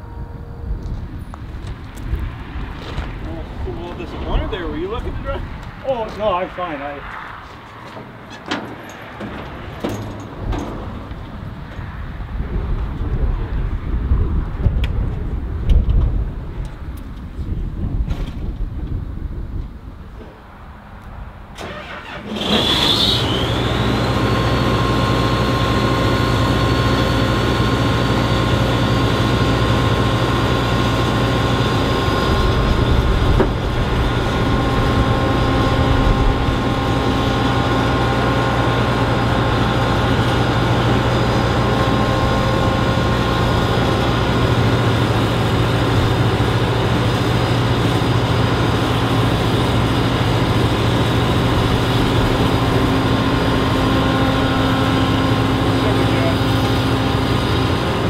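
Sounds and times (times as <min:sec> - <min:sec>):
diesel engine idling: 0:21.6 - 0:58.0.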